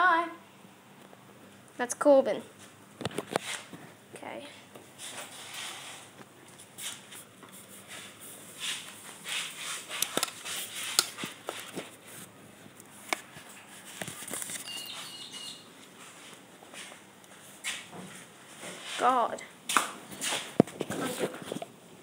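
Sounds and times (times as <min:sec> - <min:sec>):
phone handling rustling: 0:12.8 - 0:14.7
faint high squeak: 0:14.6 - 0:15.7.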